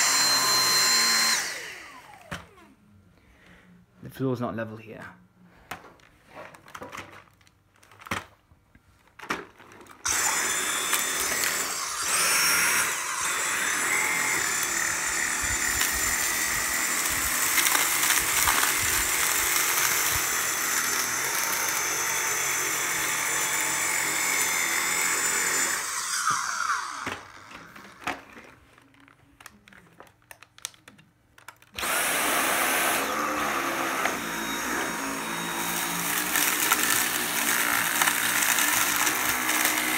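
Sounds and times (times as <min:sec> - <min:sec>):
vacuum cleaner motor whine: 0:00.0 - 0:02.7, 0:10.1 - 0:28.2, 0:31.8 - 0:39.9.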